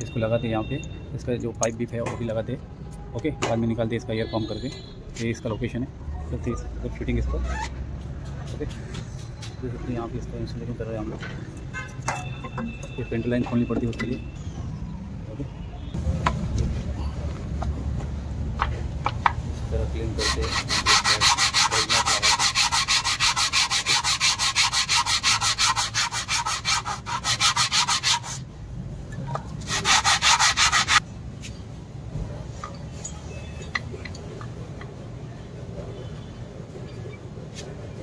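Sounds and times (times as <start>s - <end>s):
hand tool rasping strokes: 20.2s - 28.4s, 29.6s - 31.0s.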